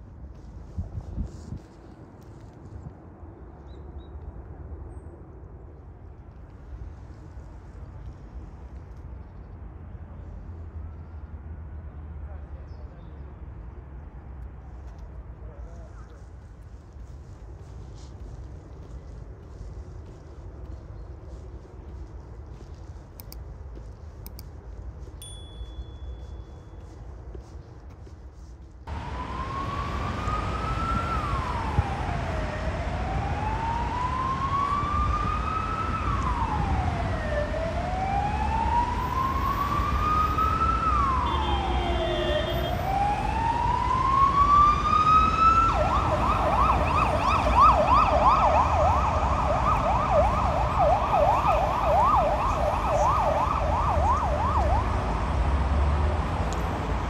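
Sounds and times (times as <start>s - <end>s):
road traffic noise: 0.0s - 57.0s
emergency vehicle siren: 28.9s - 57.0s.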